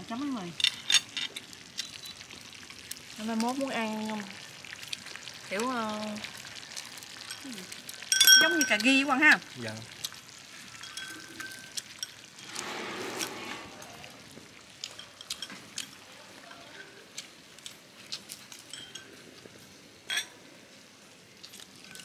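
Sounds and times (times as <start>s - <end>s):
tableware clinking: 0.6s - 2.0s, 7.2s - 8.9s, 10.7s - 13.8s, 14.8s - 17.0s, 18.5s - 19.3s, 20.0s - 20.4s.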